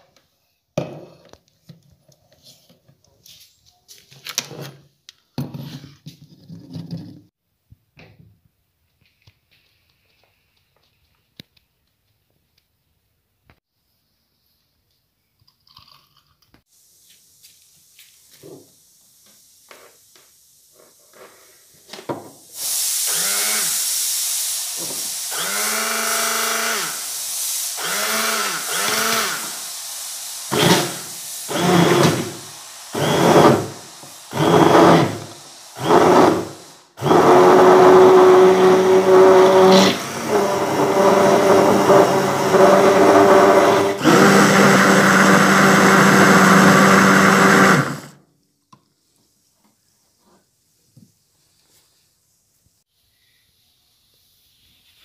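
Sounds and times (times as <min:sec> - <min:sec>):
hand blender motor: 0:23.0 - 0:23.8, 0:24.7 - 0:27.1, 0:27.7 - 0:48.2.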